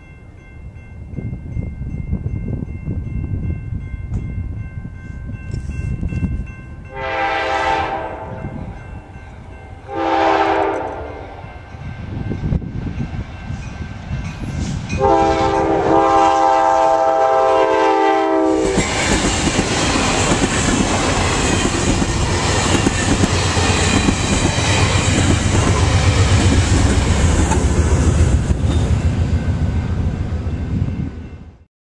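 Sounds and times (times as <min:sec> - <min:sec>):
train wheels rumbling on rails: 0:01.0 - 0:31.7
train horn chord: 0:06.8 - 0:11.9, 0:15.0 - 0:19.2
clickety-clack over rail joints: 0:18.7 - 0:29.0.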